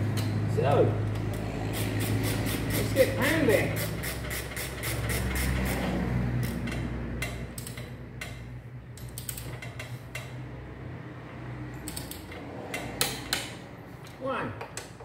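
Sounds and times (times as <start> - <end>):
ratchet wrench clicking: 1.1 - 10.4, 11.7 - 13.6.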